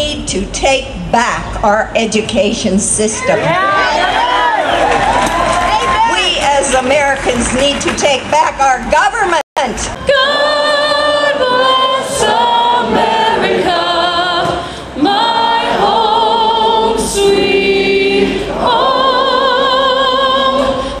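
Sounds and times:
voices singing slow song: 10.0s - 21.0s.

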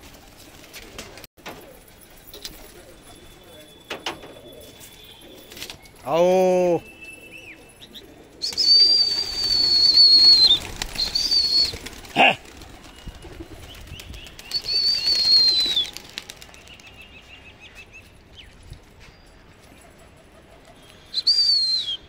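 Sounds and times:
pigeon wings flapping: 0.0s - 2.9s, 8.4s - 17.1s
loud high whistle: 8.4s - 11.7s, 21.1s - 22.0s.

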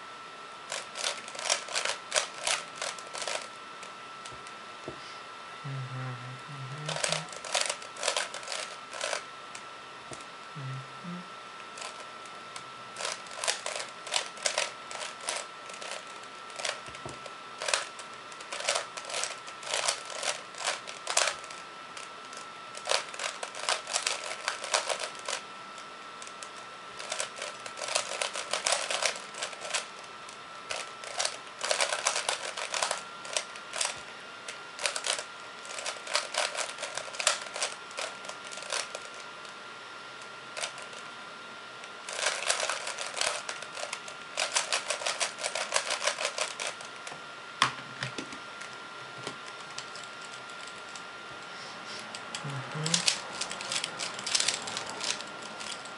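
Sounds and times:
puzzle cube plastic clicks: 6.9s - 9.2s, 17.6s - 21.6s, 22.3s - 25.4s, 27.0s - 29.9s, 30.7s - 34.0s, 34.8s - 39.2s, 42.1s - 46.8s, 52.3s - 55.9s.

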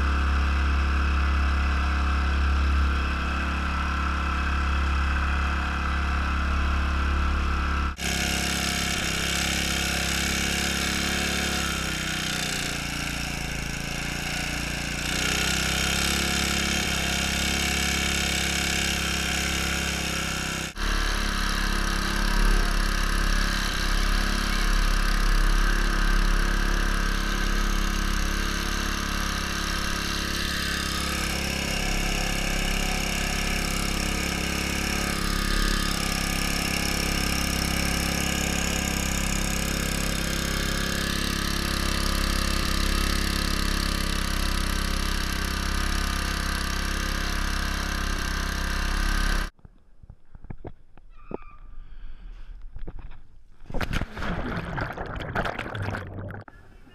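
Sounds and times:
small engine running: 0.0s - 49.5s
water spraying and splashing: 53.7s - 56.5s.

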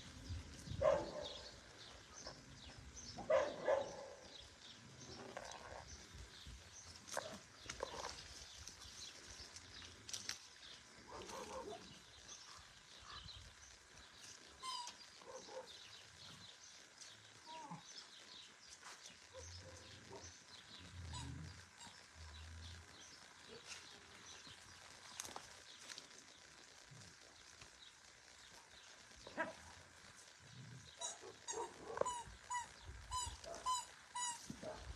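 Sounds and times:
faint animal calls: 20.9s - 22.8s, 30.5s - 34.9s.

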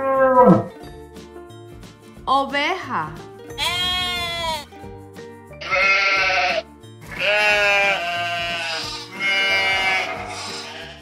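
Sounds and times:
background music: 0.0s - 11.0s
sheep bleating: 3.6s - 4.7s, 5.6s - 11.0s.

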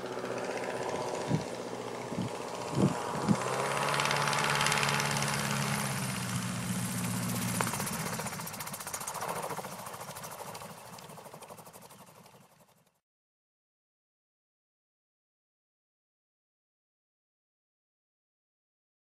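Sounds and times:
autogyro engine and rotor: 0.0s - 13.0s.

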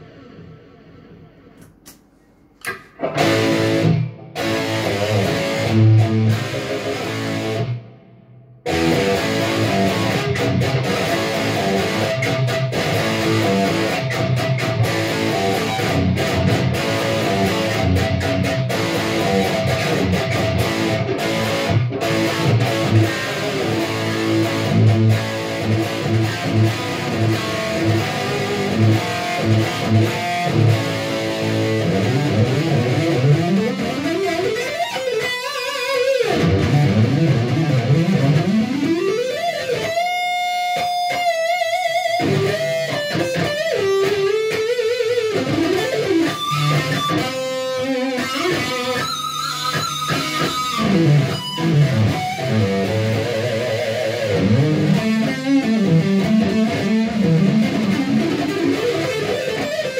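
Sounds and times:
electric guitar riffs: 0.0s - 2.0s, 2.6s - 59.9s.

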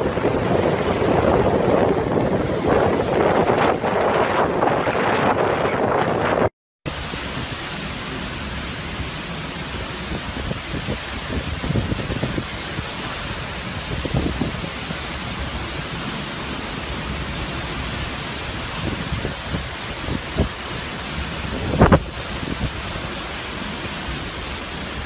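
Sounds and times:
gusts buffeting microphone: 0.0s - 25.0s
hurricane wind: 0.0s - 25.0s
heavy rain hiss: 6.9s - 25.0s.

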